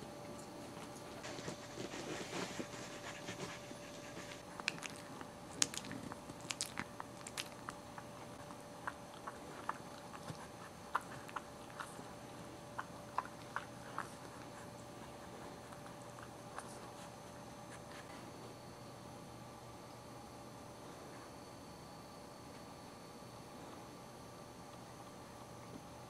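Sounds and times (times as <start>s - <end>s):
dogs mouthing clicks and smacks: 0.1s - 17.2s.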